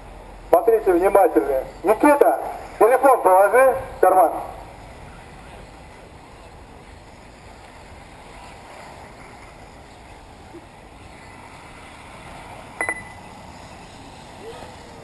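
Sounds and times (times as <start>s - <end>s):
short high beeps: 12.8s - 13.2s.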